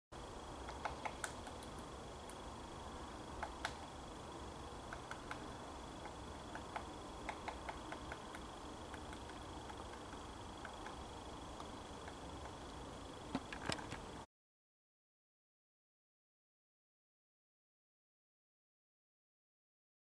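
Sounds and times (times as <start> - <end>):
faint high whine: 0.2 - 14.3
woodpecker ticks: 0.6 - 2.4, 4.8 - 11.0.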